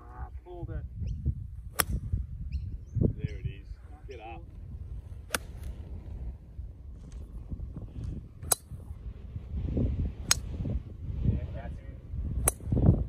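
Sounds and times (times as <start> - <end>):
wind rumbling on microphone: 0.0 - 13.0
golf club striking ball: 1.7 - 2.2, 5.2 - 5.7, 8.1 - 8.9, 10.2 - 10.6, 12.4 - 12.8.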